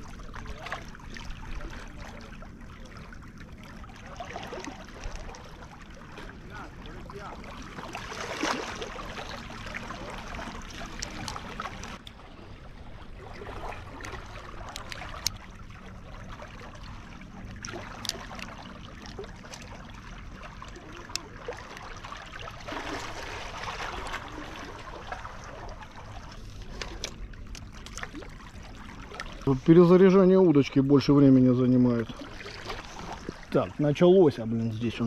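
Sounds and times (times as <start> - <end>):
water lapping against rocks: 0.0 - 35.0.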